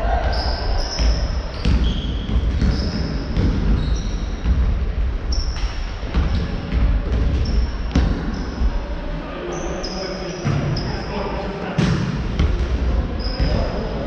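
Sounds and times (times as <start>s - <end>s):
shoes squeaking on hardwood floor: 0.3s - 4.5s, 5.3s - 6.6s, 13.2s - 13.8s
basketball bouncing: 0.3s - 8.3s.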